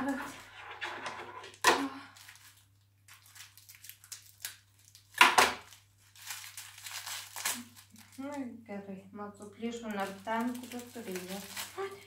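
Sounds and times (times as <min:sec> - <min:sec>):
biscuit wrapper crinkling and tearing: 0:02.0 - 0:08.4, 0:09.8 - 0:12.0.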